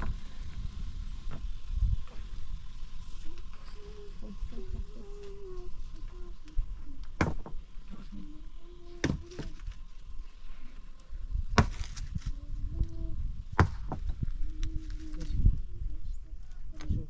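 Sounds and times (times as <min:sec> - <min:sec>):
hard chopping strikes: 0:07.2 - 0:07.6, 0:11.6 - 0:12.0, 0:13.6 - 0:14.0.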